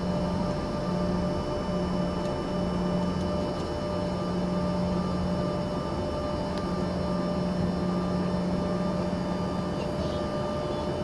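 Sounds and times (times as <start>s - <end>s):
jet engines humming and whining: 0.0s - 11.0s.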